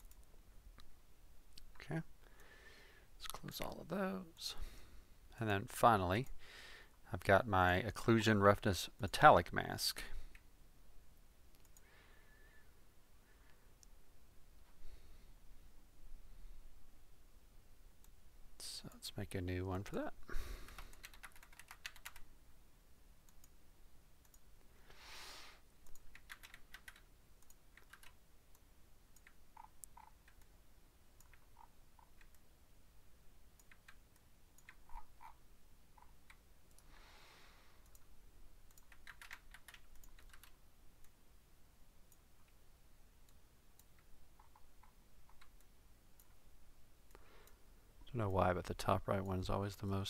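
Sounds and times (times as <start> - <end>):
keyboard keystrokes: 20.7 - 22.2, 25.9 - 28.2, 38.7 - 40.6.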